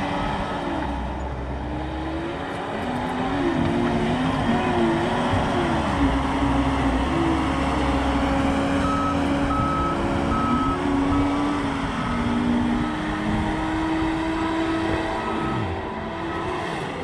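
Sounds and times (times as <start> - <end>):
diesel engine revving: 0.0 - 17.0
backup alarm beeping: 8.8 - 13.1, 15.0 - 15.8.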